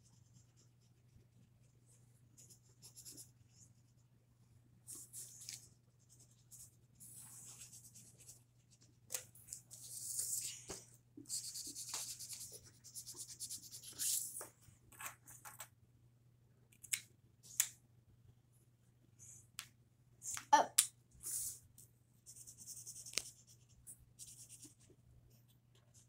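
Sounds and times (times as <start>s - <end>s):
marker scribbling on paper: 2.4s - 3.4s, 4.9s - 8.4s, 9.7s - 14.4s, 22.3s - 24.9s.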